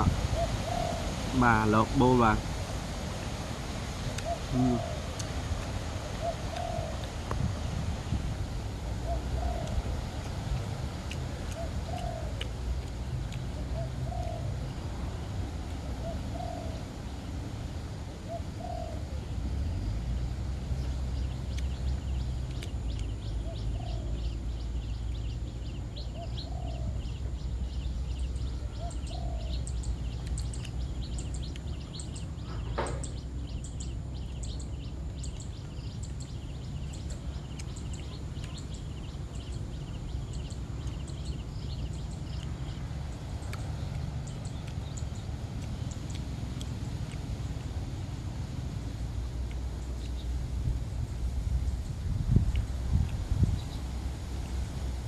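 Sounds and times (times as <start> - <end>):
doves cooing: 0.0 - 1.8, 4.2 - 7.2, 8.9 - 10.3, 11.3 - 12.8, 13.5 - 17.1, 18.2 - 19.3, 26.2 - 27.1, 28.8 - 29.6
steady low rumble: 0.0 - 55.0.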